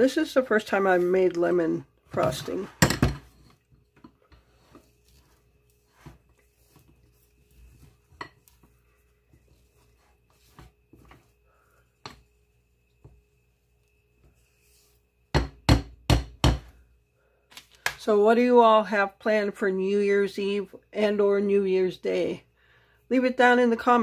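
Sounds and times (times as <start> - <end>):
spatula scraping a mixing bowl: 0.5 - 15.0.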